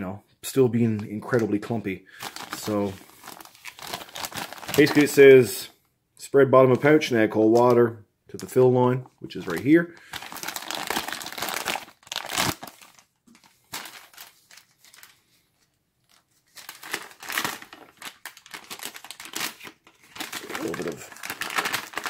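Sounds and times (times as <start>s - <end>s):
paper pouch crinkling: 2.2s - 5.2s, 9.3s - 22.0s.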